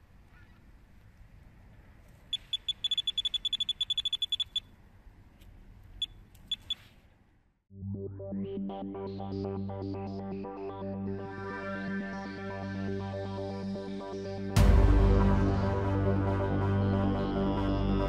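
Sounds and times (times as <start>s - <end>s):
bite alarm beeping: 2.3s - 4.7s, 6.0s - 6.8s.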